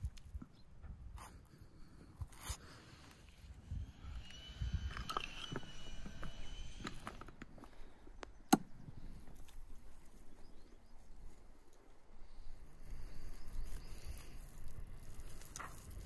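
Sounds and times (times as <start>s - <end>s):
low rumble: 3.3s - 9.2s.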